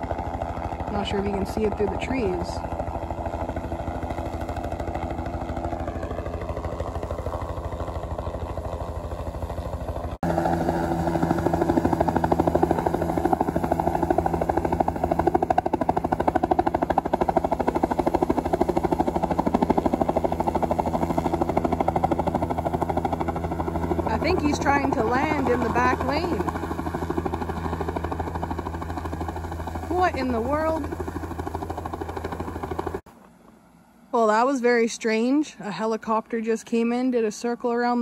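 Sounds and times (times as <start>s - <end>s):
helicopter rotor chopping: 0.0s - 33.6s.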